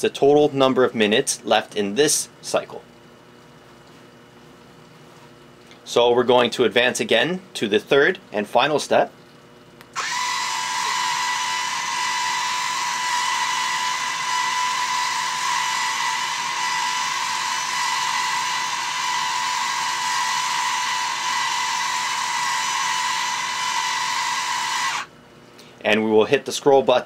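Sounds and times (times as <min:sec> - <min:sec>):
valve drive whirring whine: 0:09.9 - 0:25.2.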